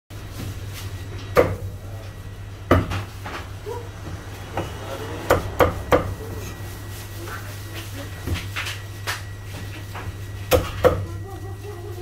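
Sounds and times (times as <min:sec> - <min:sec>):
meat cleaver chopping on wooden block: 0:04.6 - 0:06.2.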